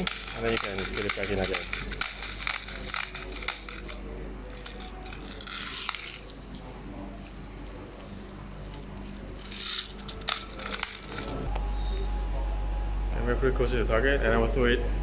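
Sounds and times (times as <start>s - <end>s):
plastic pellets rattling in container: 0.0s - 11.5s.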